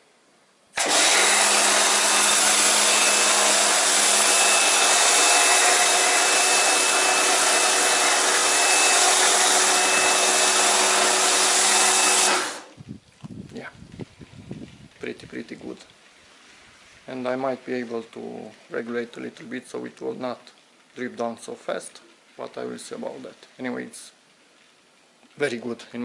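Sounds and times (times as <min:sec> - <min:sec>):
pressure washer motor drone: 0:00.8 - 0:12.7
foam spray hiss: 0:01.4 - 0:12.7.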